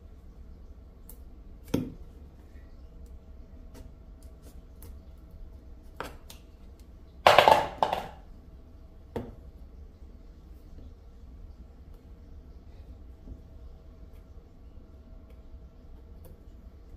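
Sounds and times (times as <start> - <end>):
chestnuts clattering in metal bowl: 7.3 - 8.2
knock on cutting board: 7.3 - 8.2.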